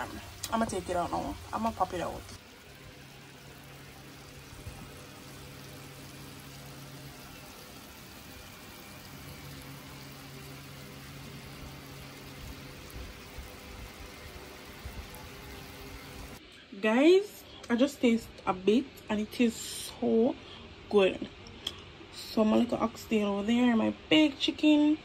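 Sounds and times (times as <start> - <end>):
baked dish sizzling: 0.0 - 16.4.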